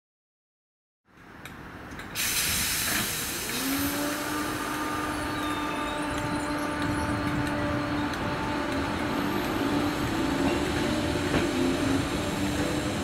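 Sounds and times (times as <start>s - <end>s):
electric train hum: 1.9s - 13.0s
loud air hiss: 2.2s - 5.1s.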